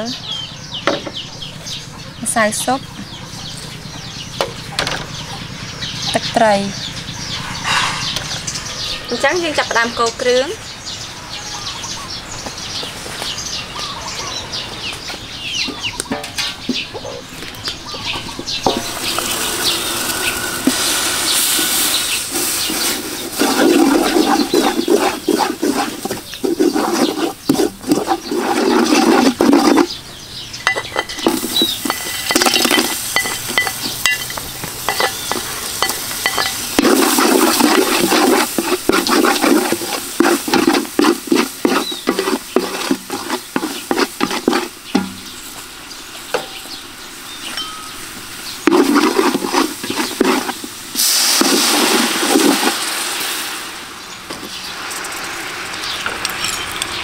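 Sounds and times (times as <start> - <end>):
birds chirping: 0.0 - 52.9, 53.8 - 57.0
wooden stirrer scraping pot: 18.2 - 45.4, 48.6 - 52.9
hiss of frying: 18.7 - 28.9, 31.2 - 57.0.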